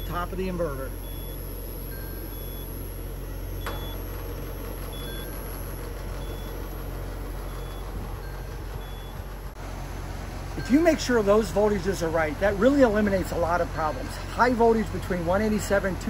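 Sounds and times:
outdoor unit humming and whooshing: 0.0 - 16.0
faint short beep: 1.0 - 4.1.

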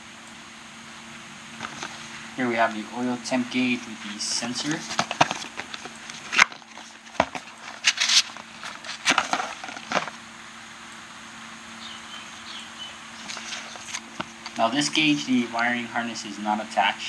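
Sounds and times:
faint steady hum: 0.0 - 17.0
cardboard scraping and crinkling: 1.6 - 2.2, 3.8 - 10.2, 13.2 - 14.6.

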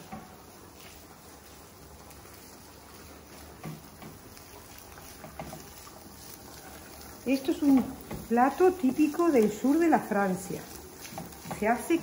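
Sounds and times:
meat sizzling in a frying pan: 0.0 - 12.0
spatula knocking: 5.0 - 5.9, 7.6 - 8.6, 11.0 - 11.9.

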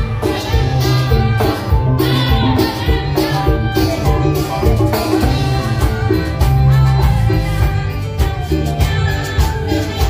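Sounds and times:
bass line: 0.0 - 10.0
drum kit: 0.0 - 10.0
live band music: 0.0 - 10.0.

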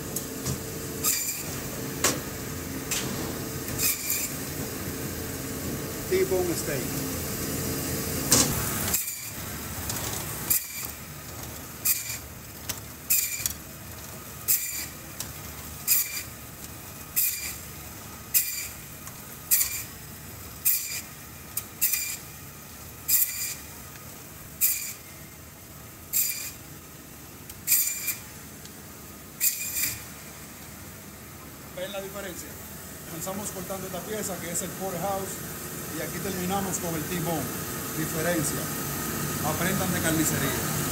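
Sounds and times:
band saw running: 1.0 - 1.7, 3.5 - 11.2, 11.8 - 12.3, 13.0 - 13.6, 14.4 - 15.1, 15.8 - 16.4, 17.0 - 19.9, 21.8 - 22.3.

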